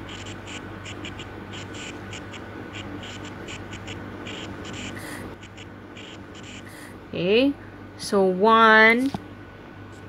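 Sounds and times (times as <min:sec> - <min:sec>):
stylus scratching on tablet screen: 0:00.0 - 0:06.7
low steady hum: 0:00.0 - 0:10.0.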